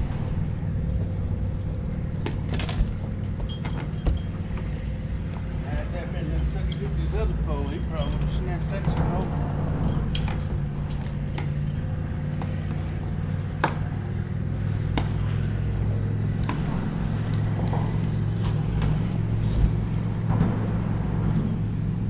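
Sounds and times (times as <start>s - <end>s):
boat motor humming: 0.0s - 22.0s.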